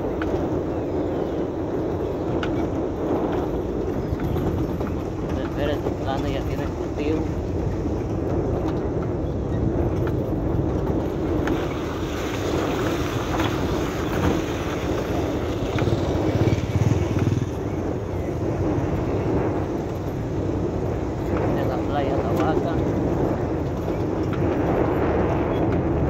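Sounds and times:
vehicle rumbling on gravel road: 0.0s - 26.0s
knocks from rough road: 2.4s - 17.7s
motorcycles passing: 10.3s - 26.0s.

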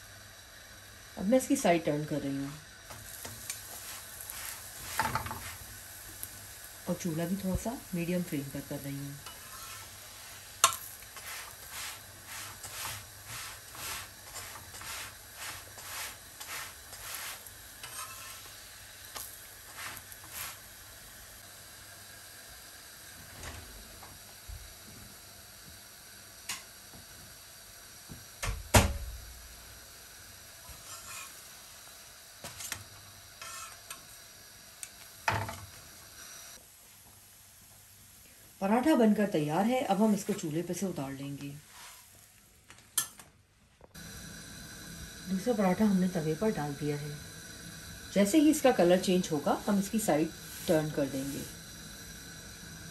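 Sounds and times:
flatbread sizzling on hot griddle: 0.0s - 43.2s, 43.8s - 52.9s
metal spatula scraping: 3.0s - 5.7s, 9.2s - 18.5s, 19.7s - 20.6s, 30.7s - 31.4s, 33.4s - 34.0s.

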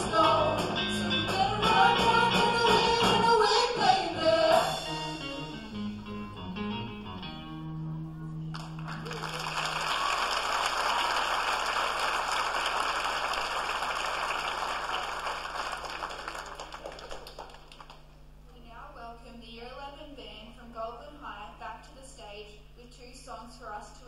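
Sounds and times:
live band playing: 0.0s - 9.5s
audience applause: 8.5s - 18.0s.

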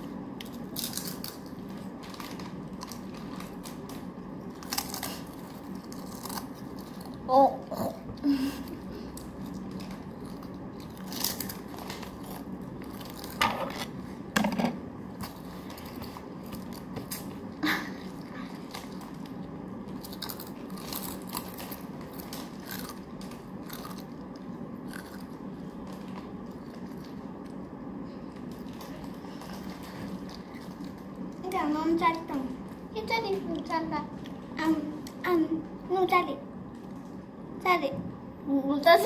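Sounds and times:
steady low hum: 0.0s - 39.0s
chips crunching: 0.4s - 7.3s, 18.7s - 27.2s.

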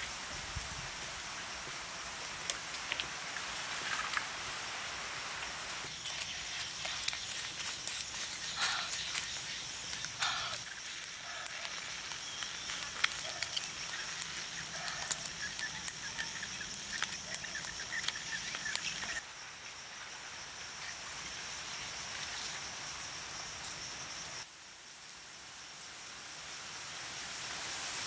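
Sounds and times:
high-pitched hiss: 0.0s - 28.0s
food popping and crackling on grill: 5.9s - 19.2s.

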